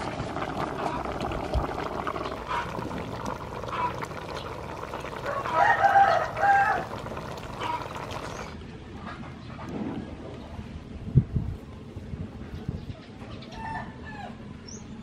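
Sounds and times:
rooster crowing: 5.2 - 7.9.

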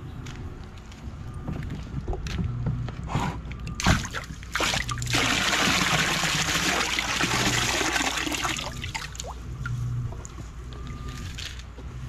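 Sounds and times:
water pouring and splashing: 3.8 - 9.4.

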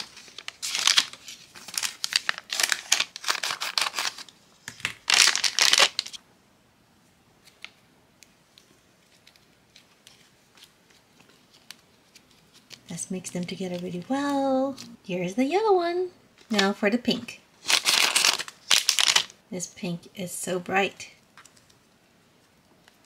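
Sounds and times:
foil packet crinkling and tearing: 0.0 - 6.2, 17.6 - 19.4.

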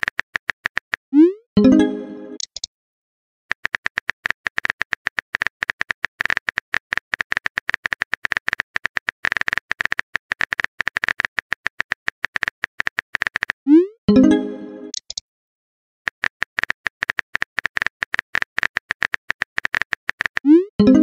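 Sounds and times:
phone keyboard typing clicks: 3.5 - 13.6, 16.1 - 20.6.

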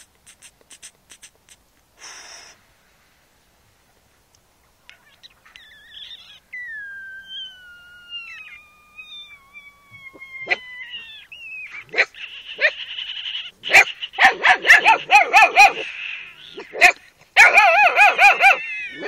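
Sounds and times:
puppy whining: 4.9 - 12.8, 17.5 - 19.0.

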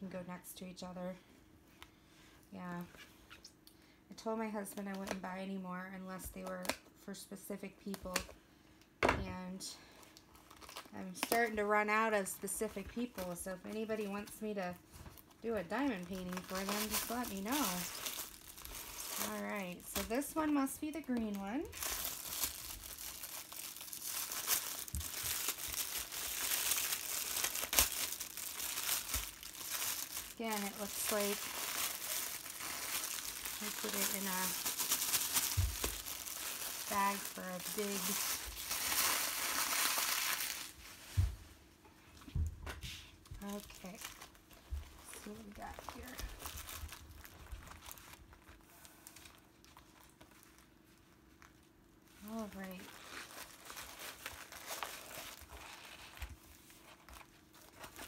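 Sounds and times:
plastic wrap crinkling: 9.9 - 41.3, 43.3 - 58.0.

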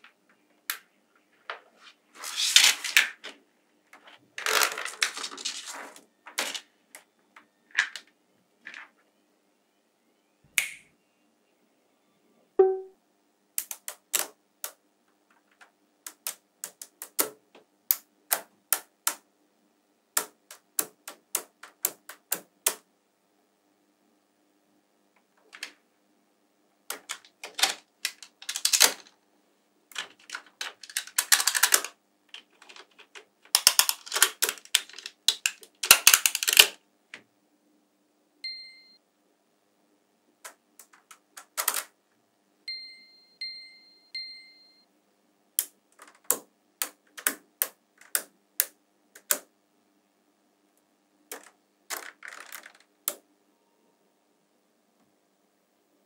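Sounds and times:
short high ding: 12.6 - 13.0
magnet balls clicking: 33.5 - 36.8.

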